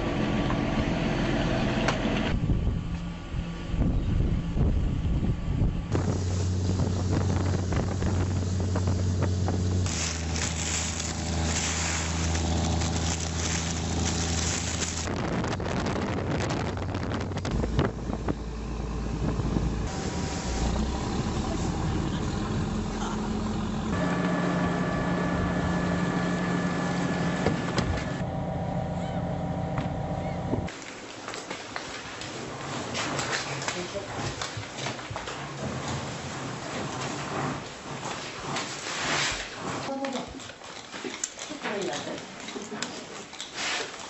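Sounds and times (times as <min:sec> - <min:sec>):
wind: 0:00.0 - 0:44.0
boat engine running: 0:03.8 - 0:30.7
water noise: 0:05.9 - 0:28.3.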